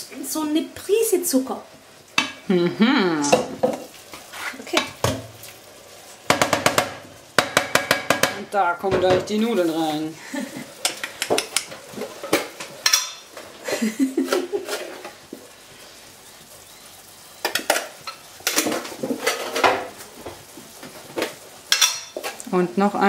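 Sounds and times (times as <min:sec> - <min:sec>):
stirring in a frying pan: 0:00.0 - 0:23.0
metal kitchenware clinking: 0:10.8 - 0:13.3, 0:21.7 - 0:22.2.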